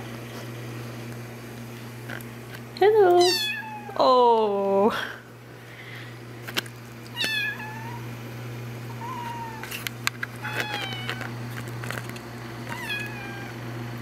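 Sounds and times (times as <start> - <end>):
steady low hum: 0.0 - 14.0
kitten meowing: 3.2 - 4.0, 7.1 - 8.0, 9.0 - 9.6, 10.4 - 11.1, 12.7 - 13.6.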